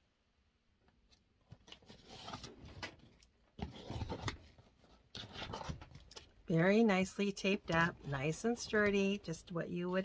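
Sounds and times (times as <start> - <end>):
cardboard box scraping and rustling: 3.6 - 4.6.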